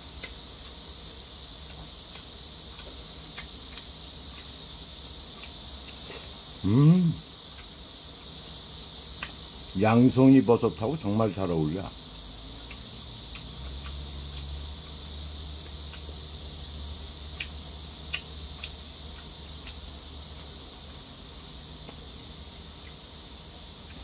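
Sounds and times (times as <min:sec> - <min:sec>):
steady high hiss: 0:00.0 - 0:24.0
mouth smacks and clicks: 0:09.1 - 0:09.4, 0:12.6 - 0:14.5, 0:15.6 - 0:16.2, 0:17.3 - 0:19.9.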